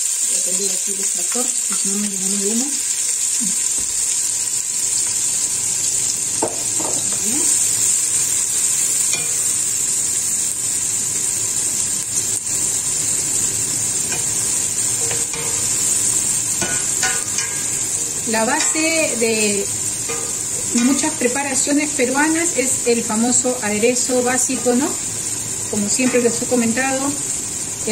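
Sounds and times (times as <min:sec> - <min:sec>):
onion sizzling in oil: 0:00.0 - 0:27.9
spoon scraping a pot: 0:14.1 - 0:18.0, 0:20.0 - 0:21.2.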